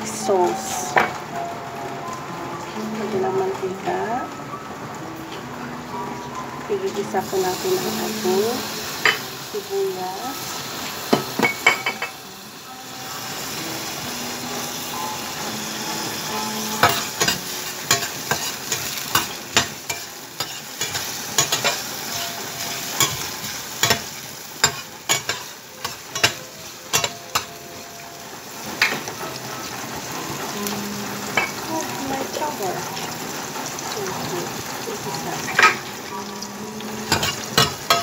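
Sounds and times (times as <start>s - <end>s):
onions sizzling in oil: 0.0s - 38.0s
metal utensil scraping a pan: 16.0s - 27.5s, 37.0s - 38.0s.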